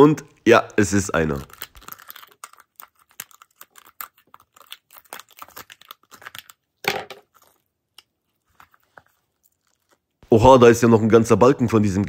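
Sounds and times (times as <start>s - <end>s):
wet crackling and clicking: 1.3s - 6.6s.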